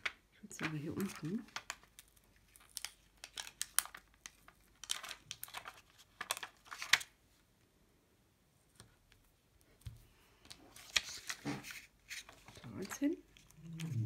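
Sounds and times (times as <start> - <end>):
rhinestones crinkling and rustling: 0.0 - 7.1.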